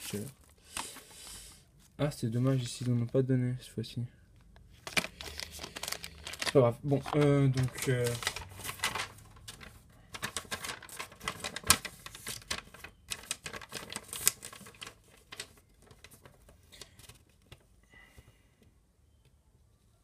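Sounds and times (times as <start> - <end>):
packaging clicks and crinkles: 4.8 - 17.6.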